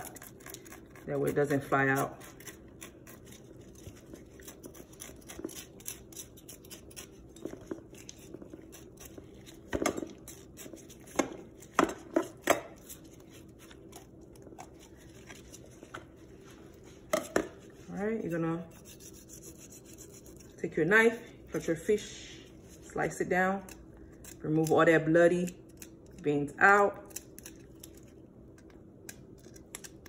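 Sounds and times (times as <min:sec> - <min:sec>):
knife scraping fish scales: 0:00.0 - 0:15.8, 0:18.6 - 0:20.6.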